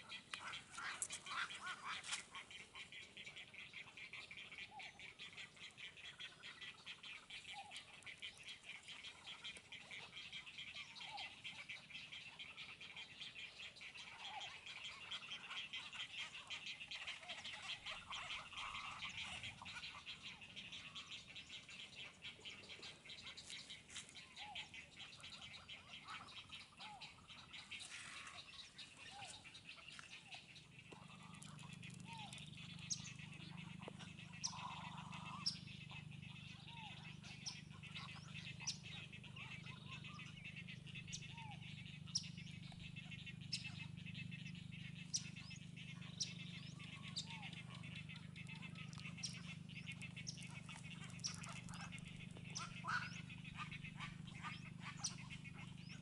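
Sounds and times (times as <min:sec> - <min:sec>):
bird chirps: 0:00.0 - 0:56.0
chorus of rapid pulsing calls: 0:00.0 - 0:56.0.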